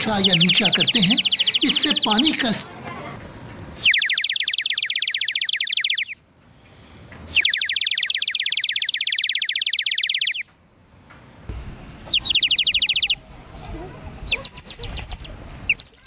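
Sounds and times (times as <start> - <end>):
water bird whistle trills: 3.8 - 6.2, 7.3 - 10.5, 14.3 - 16.0.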